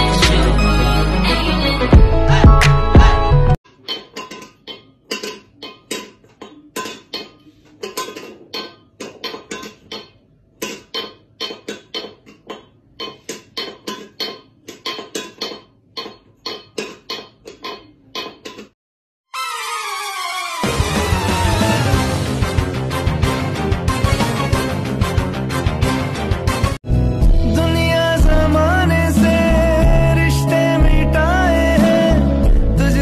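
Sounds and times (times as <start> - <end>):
metal bowl clanking on tile: 3.7 - 18.7.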